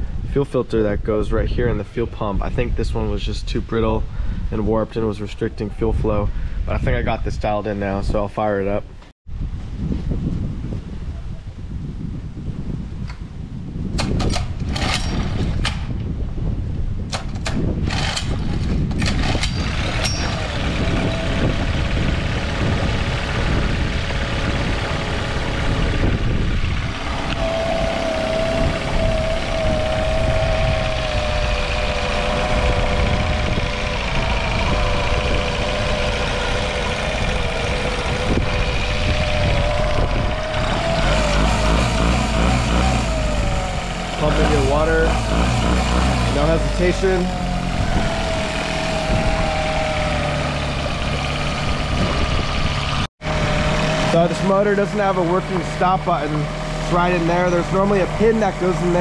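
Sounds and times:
outboard motor running: 17.6 - 59.0.

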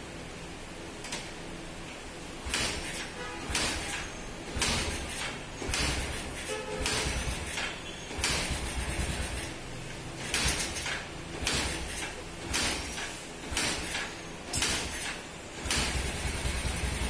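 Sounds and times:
motorcycle engine kick-start cranking: 4.8 - 9.6.

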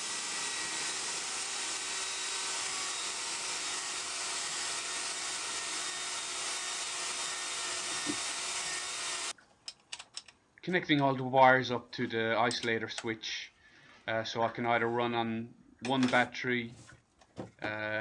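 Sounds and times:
cordless drill boring: 0.0 - 9.3.

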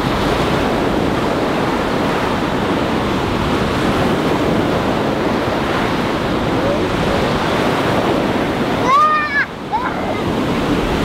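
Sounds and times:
ocean surf breaking: 0.0 - 11.0.

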